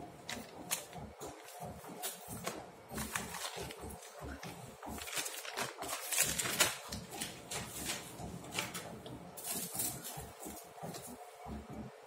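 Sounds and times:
plastic bag crinkling: 4.9s - 8.8s.

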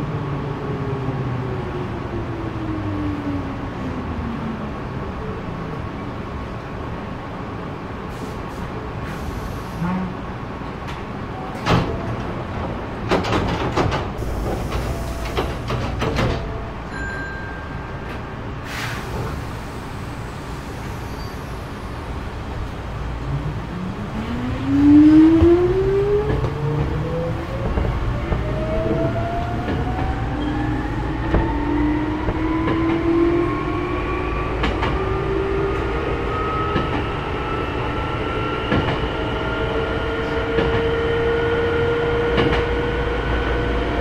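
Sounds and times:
sliding doors clunking shut: 10.9s - 16.6s.

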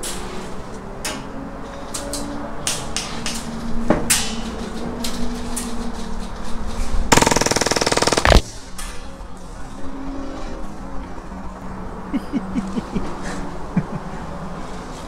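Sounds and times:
airsoft pistol full-auto burst: 7.1s - 8.5s
airsoft gun single shots: 7.2s - 8.5s.

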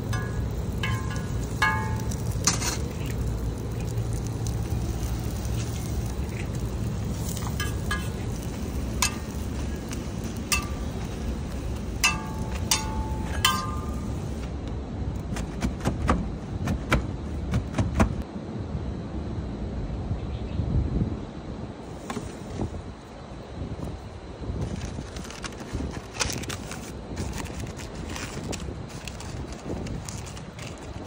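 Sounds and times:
steady low rumble: 0.0s - 21.9s
metal spatula clinking on griddle: 0.1s - 3.2s, 7.2s - 11.2s, 12.0s - 14.4s.

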